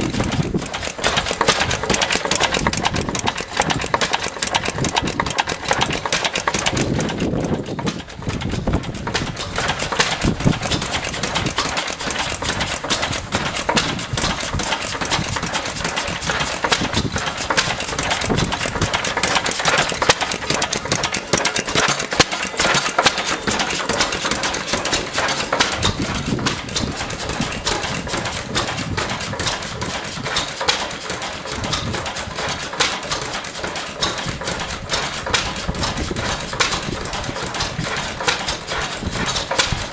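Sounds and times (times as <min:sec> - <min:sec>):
stationary engine ticking clatter: 0:00.0 - 0:39.9.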